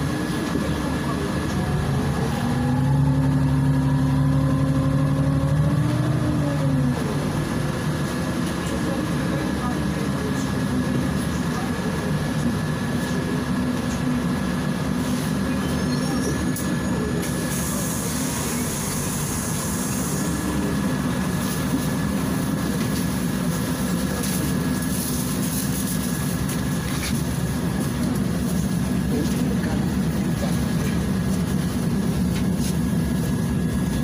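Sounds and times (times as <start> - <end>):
bus engine running: 0.0 - 34.0
road noise: 0.0 - 34.0
hiss: 17.4 - 20.6.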